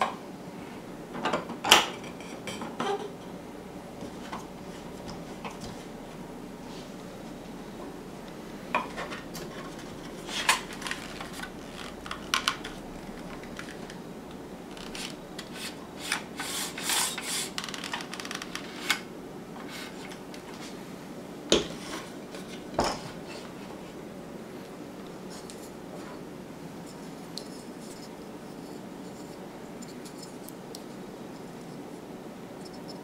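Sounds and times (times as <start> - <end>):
saw blade rubbing on wood: 14.8 - 17.6.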